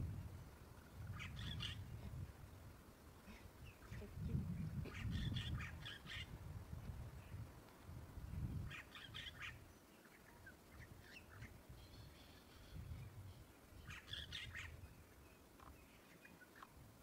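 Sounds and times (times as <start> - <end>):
faint high bird chirps: 8.7 - 16.8.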